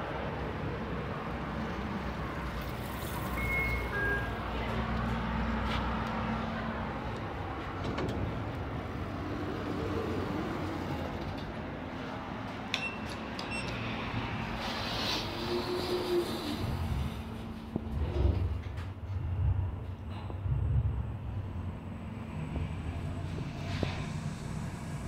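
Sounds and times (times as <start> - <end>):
street traffic: 0.0 - 25.0
short high beeps: 3.4 - 4.4.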